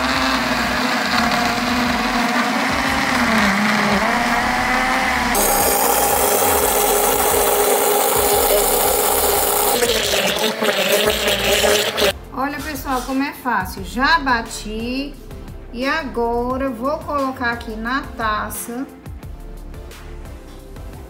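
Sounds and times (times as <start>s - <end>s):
blender motor whirring: 0.0s - 12.2s.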